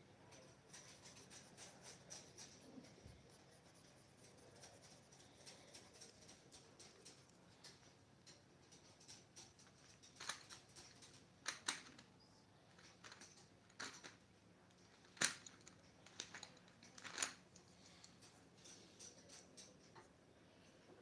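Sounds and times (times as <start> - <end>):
pencils clicking together: 0.3 - 12.1.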